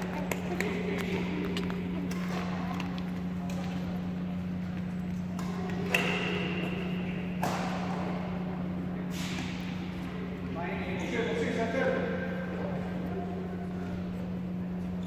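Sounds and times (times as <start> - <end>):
low hum in hall: 0.0 - 15.0
racket striking shuttlecock: 5.3 - 8.3.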